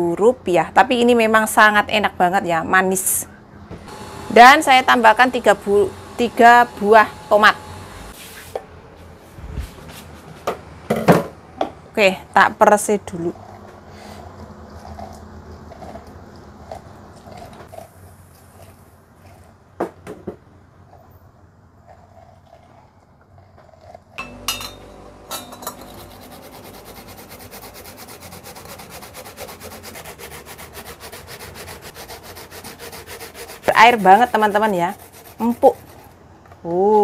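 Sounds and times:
lemon rubbing on hand juicer: 25.4s - 36.9s
grating on a metal grater: 25.7s - 36.2s.

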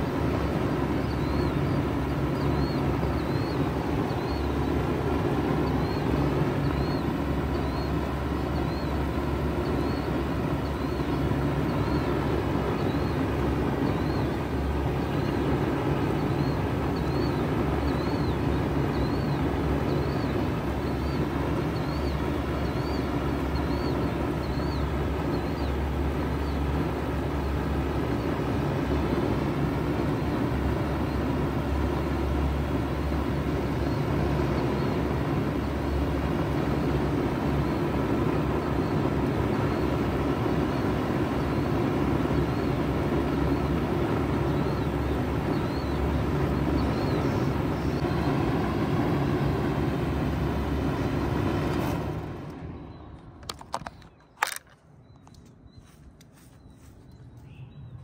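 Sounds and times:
heat pump humming: 0.0s - 58.0s
clicks: 51.7s - 56.4s.

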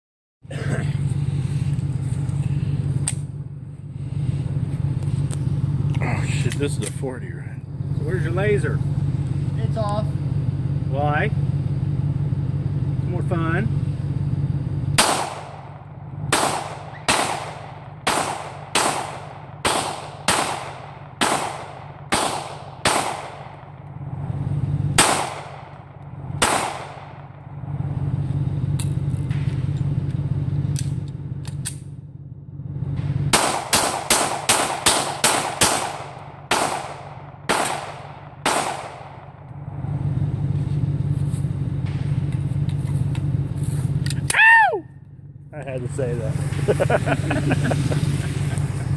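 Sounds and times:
steady low hum: 0.4s - 48.9s
pistol shots: 15.0s - 23.8s, 25.0s - 27.4s, 33.3s - 39.4s.

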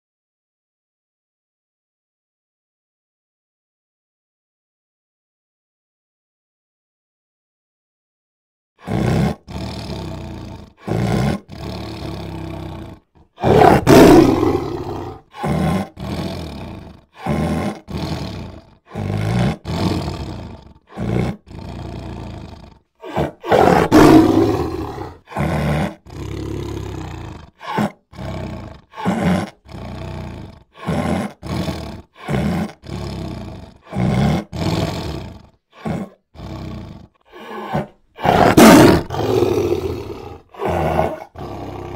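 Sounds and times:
big cats roaring and snarling: 8.8s - 41.9s.

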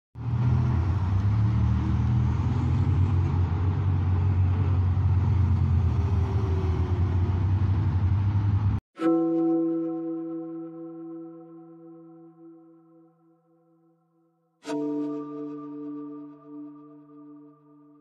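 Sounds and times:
armoured vehicle engines rumbling: 0.2s - 8.8s.

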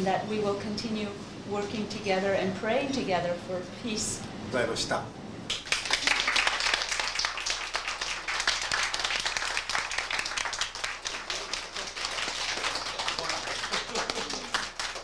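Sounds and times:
people clapping: 5.5s - 15.0s.

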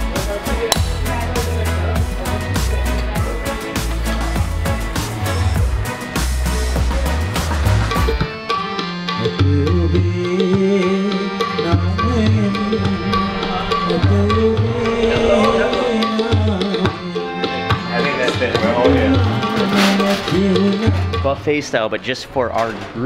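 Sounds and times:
sustained melody line: 8.3s - 21.2s.

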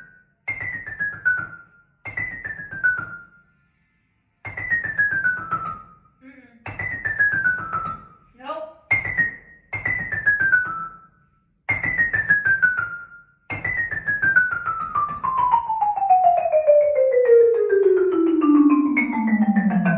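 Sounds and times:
marimba scale runs: 15.2s - 19.9s.

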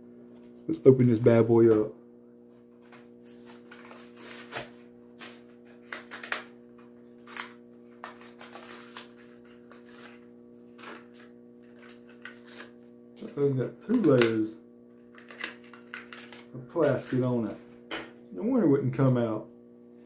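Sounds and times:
steady low hum: 0.0s - 20.0s
plastic blister pack crinkling: 3.4s - 12.8s, 15.1s - 17.3s.

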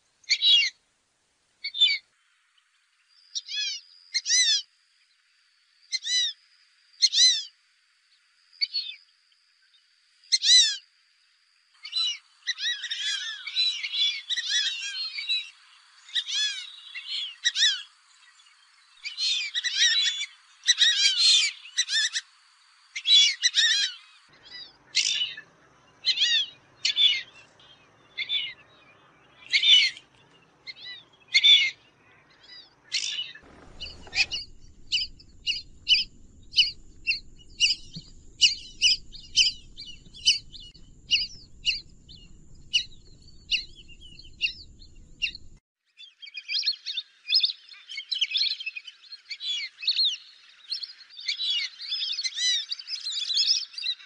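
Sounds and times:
ducks whistling calls: 30.7s - 45.6s
low rumble: 33.5s - 45.6s.

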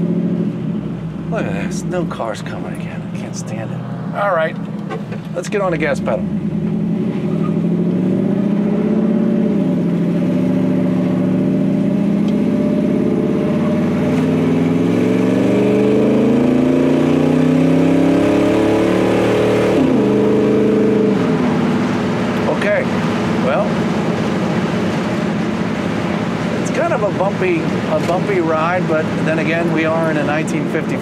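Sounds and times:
pickup truck engine accelerating: 0.0s - 31.0s.

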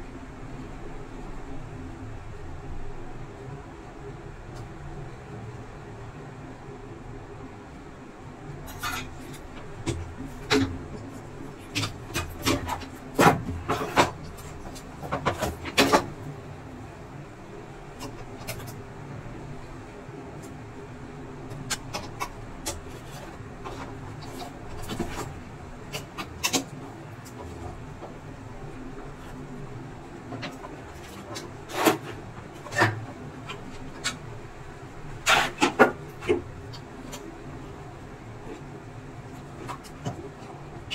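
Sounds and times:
low background noise: 0.0s - 40.9s
steady low hum: 0.0s - 40.9s.

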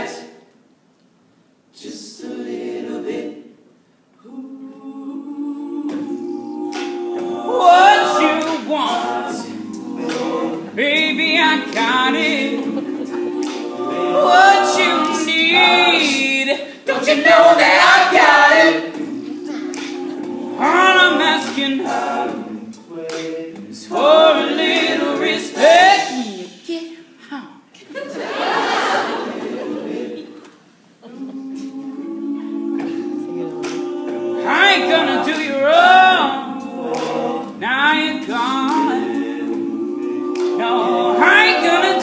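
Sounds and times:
male a cappella singing: 4.2s - 26.6s, 31.1s - 42.0s.

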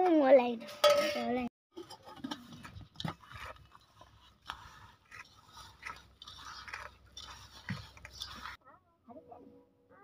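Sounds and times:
crunchy mix scraping on metal: 1.7s - 8.6s.

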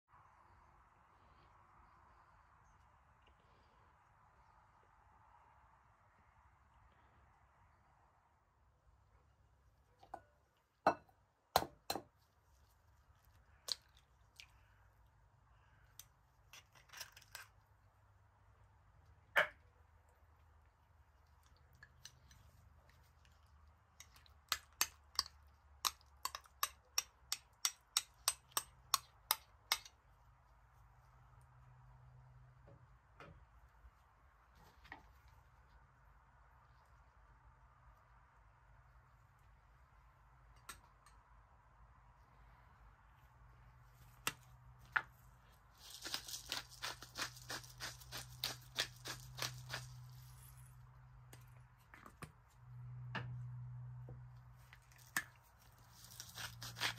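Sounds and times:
pepper mill grinding: 45.8s - 50.5s, 55.9s - 56.9s.

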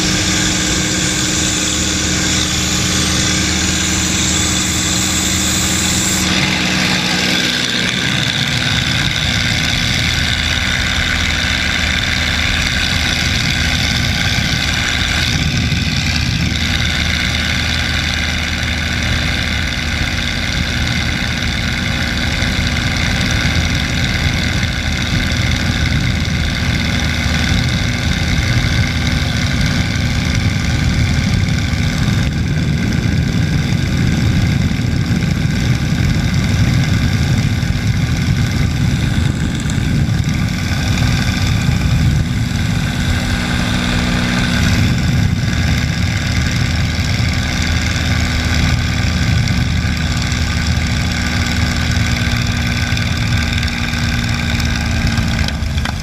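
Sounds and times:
wind rush: 0.0s - 55.8s
aircraft engine and propeller droning: 0.0s - 56.0s.

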